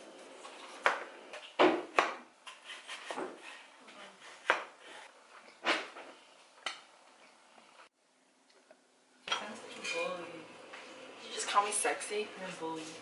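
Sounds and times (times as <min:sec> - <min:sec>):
knife chopping on cutting board: 0:01.6 - 0:03.6, 0:04.3 - 0:04.9.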